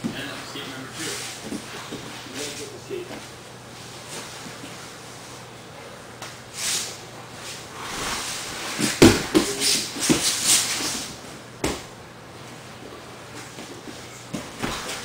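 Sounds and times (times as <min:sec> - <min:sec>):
bodies sliding on mat: 0:06.5 - 0:11.2
thumps on mat: 0:08.8 - 0:10.2.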